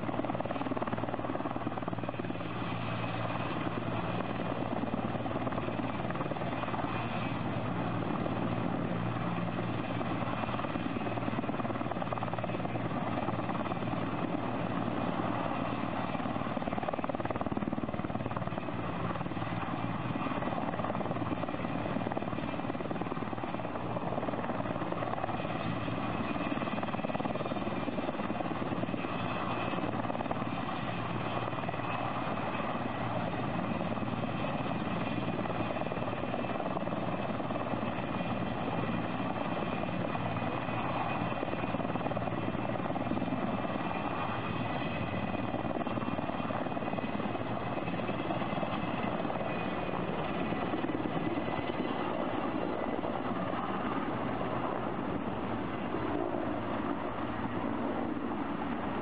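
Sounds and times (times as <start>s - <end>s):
helicopter rotor and turbines: 0.0s - 59.0s.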